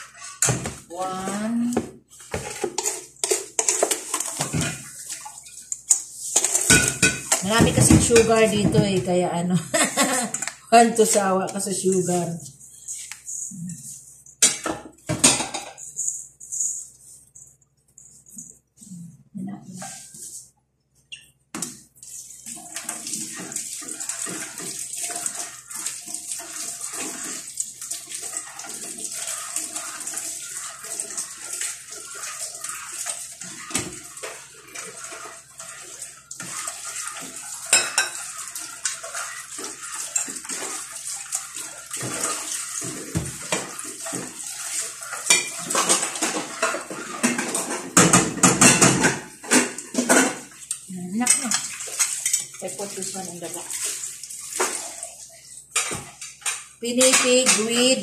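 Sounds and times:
metal spoon clinking and scraping pot: 2.4s - 8.8s, 26.2s - 52.7s.

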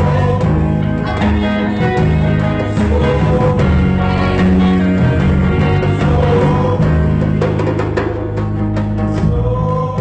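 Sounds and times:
guitar playing: 0.0s - 9.4s
electric bass guitar low notes: 0.0s - 10.0s.

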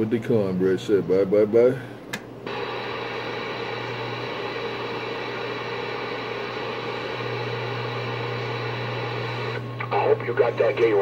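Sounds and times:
low steady hum: 0.0s - 11.0s
radio static hiss: 2.5s - 11.0s.

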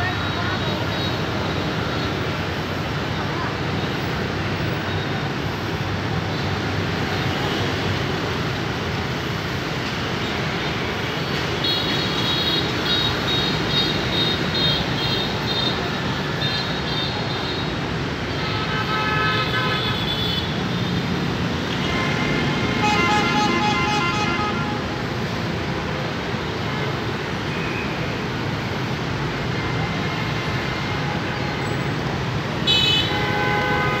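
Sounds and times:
motorbikes and cars running: 19.8s - 32.7s
vehicle horns tooting: 21.8s - 24.8s, 32.6s - 34.0s.

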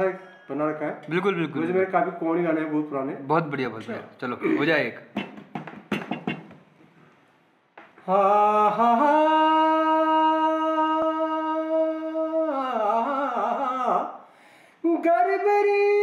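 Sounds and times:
man singing unaccompanied: 8.0s - 14.2s, 14.8s - 16.0s.

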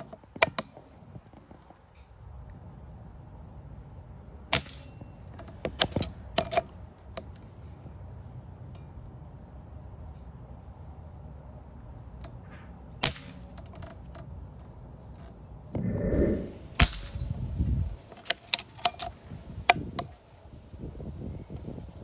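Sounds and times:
pellet rifle cracks: 13.0s - 13.9s.

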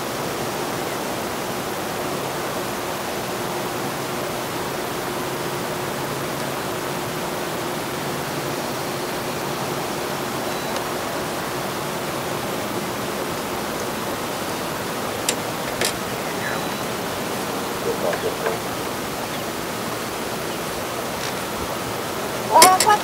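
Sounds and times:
steady hiss: 0.0s - 23.0s
faint hum: 12.8s - 23.0s.

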